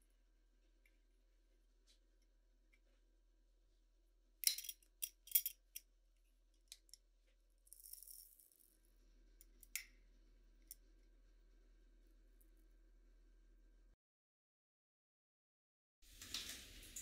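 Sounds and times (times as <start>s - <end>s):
metal jar clasp clicking: 4.4s - 5.6s
glassy clicks: 4.4s - 5.8s.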